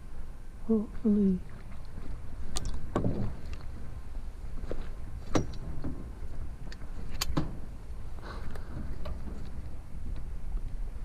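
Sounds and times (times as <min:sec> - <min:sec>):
wind rumble on microphone: 0:00.0 - 0:11.0
knocks from handling fishing gear: 0:02.6 - 0:03.4.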